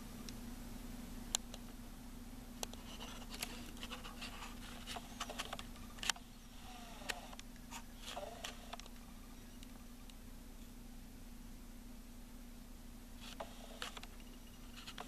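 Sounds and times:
steady low hum: 0.0 - 15.0
scratchy rustles: 2.8 - 6.1, 13.2 - 15.0.

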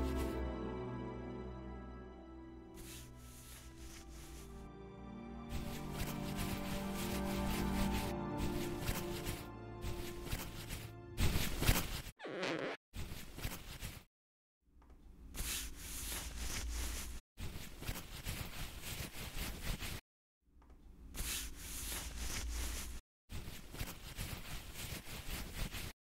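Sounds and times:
clothing rustling: 2.8 - 4.6, 5.5 - 14.0, 21.2 - 25.9.

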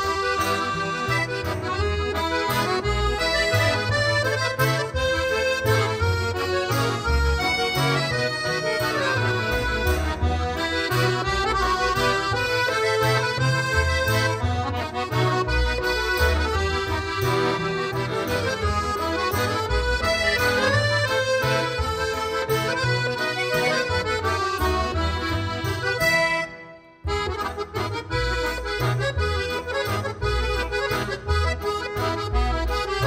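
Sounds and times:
steady bass beat: 0.0 - 26.4
accordion music: 0.0 - 33.0.

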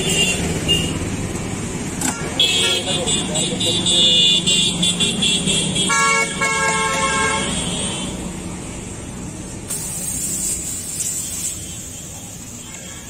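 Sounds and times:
vehicle horn: 0.0 - 1.0, 2.2 - 8.2
street traffic rumble: 0.0 - 13.0.

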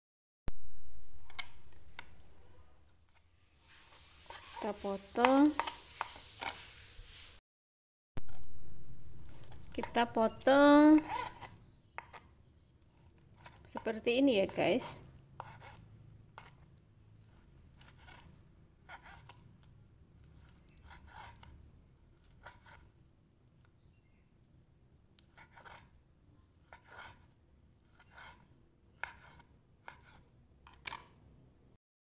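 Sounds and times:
knife tapping and scraping on board: 4.3 - 6.6, 9.4 - 12.3, 15.4 - 15.8, 27.9 - 31.1.

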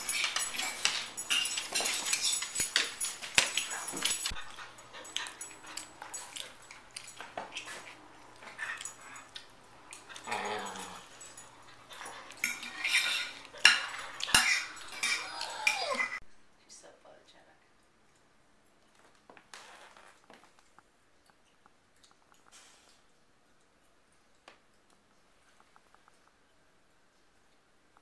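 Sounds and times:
sharp clicks and metallic clinks: 0.0 - 7.7
dogs making noise: 3.4 - 16.2.

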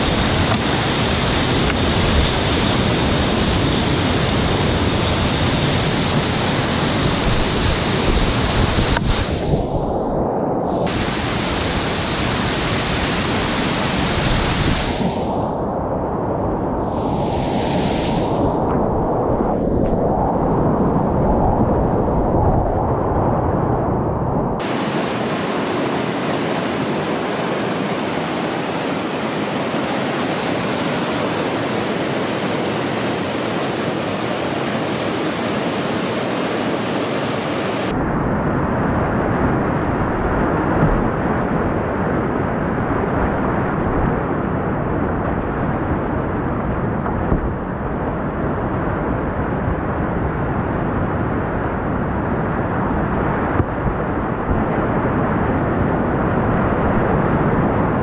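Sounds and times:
river rapids rushing: 10.8 - 15.3, 24.6 - 37.9.

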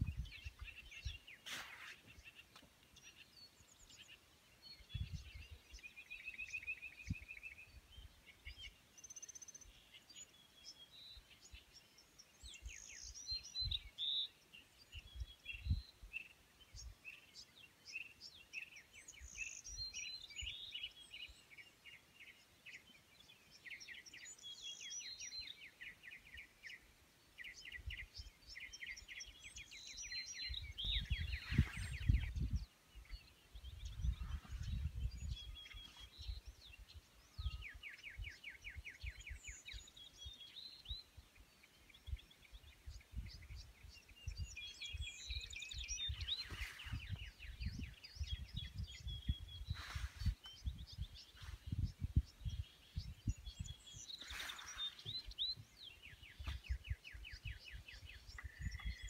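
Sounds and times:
wind buffeting microphone: 0.0 - 1.2, 4.8 - 5.8, 30.4 - 39.4, 42.0 - 59.0
birds trilling and chirping: 0.0 - 59.0.

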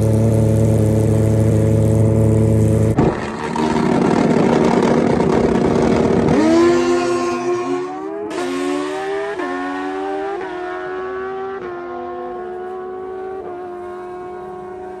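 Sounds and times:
motorcycle engine at full throttle: 0.0 - 15.0.

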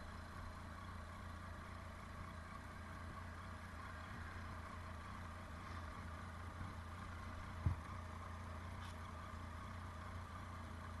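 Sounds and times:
motorcycle engine idling: 0.0 - 11.0
short thump: 7.5 - 7.9.

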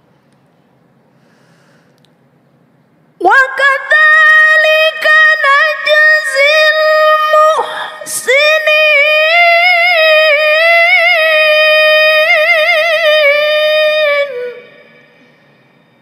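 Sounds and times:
woman chanting into a microphone: 3.2 - 15.4.

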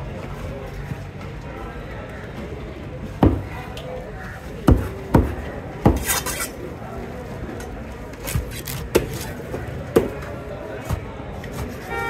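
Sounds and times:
knife scraping: 6.0 - 6.6.

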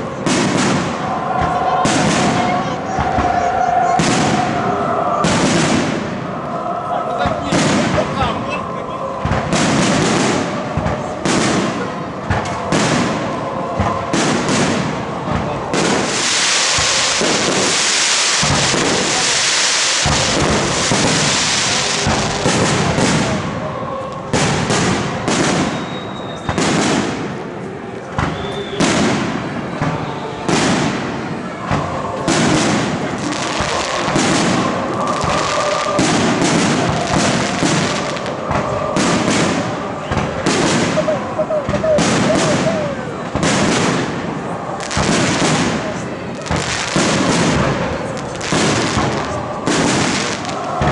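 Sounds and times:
fireworks crackle: 0.0 - 50.9
fireworks whistles: 0.2 - 6.3, 9.2 - 23.4, 24.3 - 27.4, 28.0 - 45.8
fireworks shells bursting: 15.8 - 23.4.

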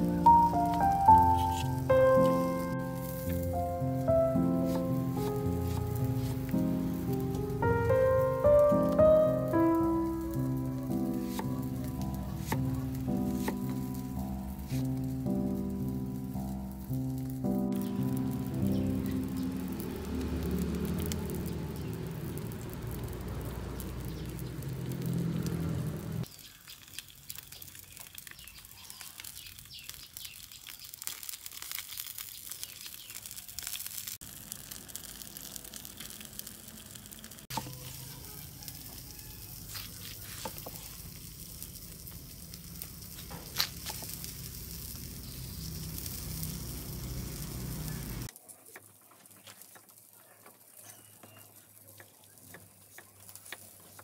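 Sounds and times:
fish sizzling on charcoal grill: 0.0 - 54.0
loud low rumble: 18.0 - 26.2.

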